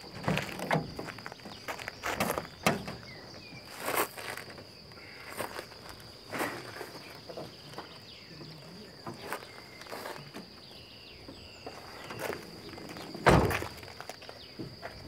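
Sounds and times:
footsteps: 0.0 - 4.7, 11.6 - 15.0.

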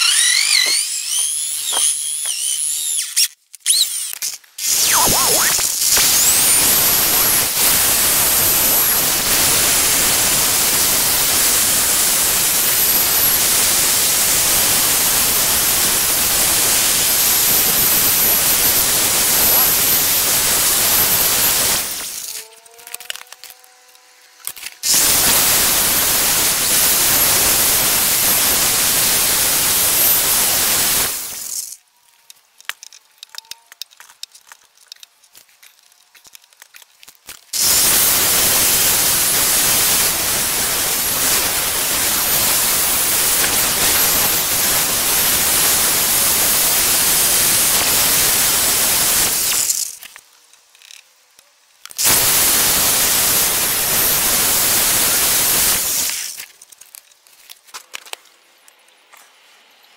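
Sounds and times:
power drill grinding into wood: 0.0 - 23.5, 37.6 - 48.4.

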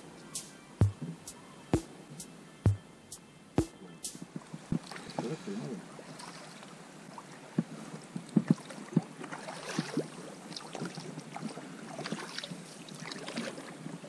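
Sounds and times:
oars in water: 4.8 - 14.0
oars knocking and creaking on boat: 7.6 - 10.0.

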